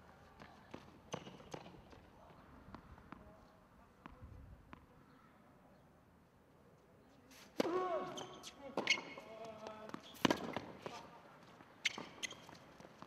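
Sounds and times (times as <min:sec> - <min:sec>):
distant tennis ball hits: 0:07.6 - 0:09.1.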